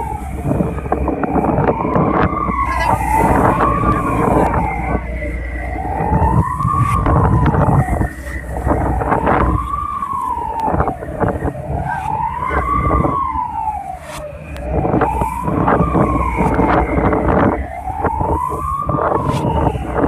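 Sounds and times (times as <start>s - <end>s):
low rumble: 0.0s - 20.0s
wailing alarm siren: 0.0s - 20.0s
wind noise: 0.0s - 20.0s.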